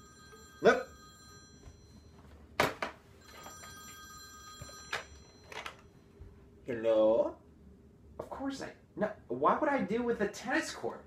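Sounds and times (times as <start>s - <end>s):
telephone ringing: 0.0s - 6.2s.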